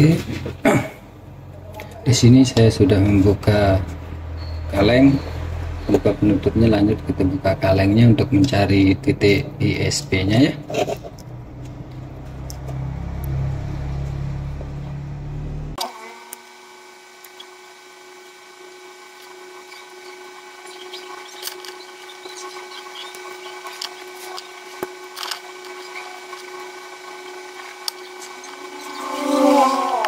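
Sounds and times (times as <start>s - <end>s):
side cutters clicking and scraping: 8.0s - 8.9s, 10.0s - 13.4s, 19.1s - 30.0s
metal grating scrape: 10.7s - 11.2s
steady low hum: 17.2s - 30.0s.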